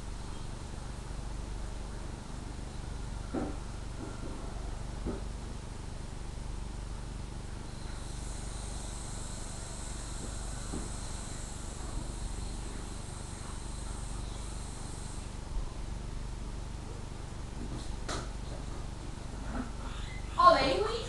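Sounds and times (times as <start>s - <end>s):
steady low hum: 0.0s - 21.0s
high thin insect buzz: 7.7s - 15.4s.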